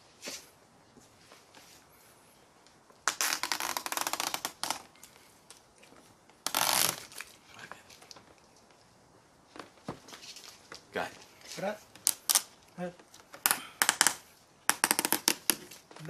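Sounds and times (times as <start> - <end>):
tape liner peeling: 3.0 - 5.6, 6.4 - 7.4, 11.9 - 15.8.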